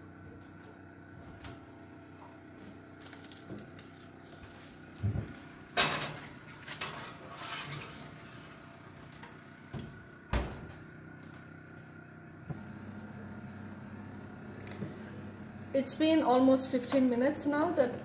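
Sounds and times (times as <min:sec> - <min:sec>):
metal baking tray clattering: 0:05.8 - 0:08.2
oven door shutting: 0:09.7 - 0:10.9.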